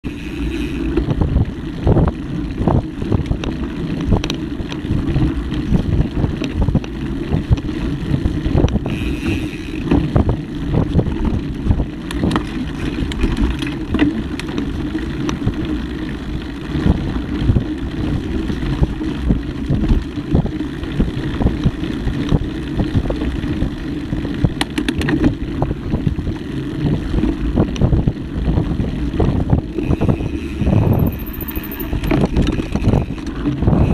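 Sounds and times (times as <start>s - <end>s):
bike knocks and rattles: 0.0s - 15.6s, 24.3s - 25.7s, 29.3s - 33.9s
bike tyres rumbling on dirt: 0.0s - 33.9s
wind buffeting microphone: 0.0s - 33.9s.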